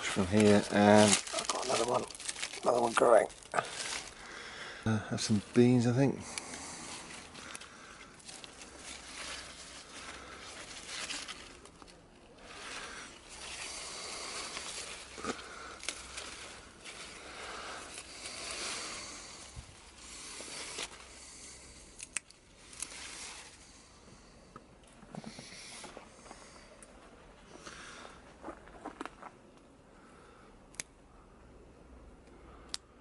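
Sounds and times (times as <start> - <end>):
leaves rustling and crackling: 0.0 - 24.0.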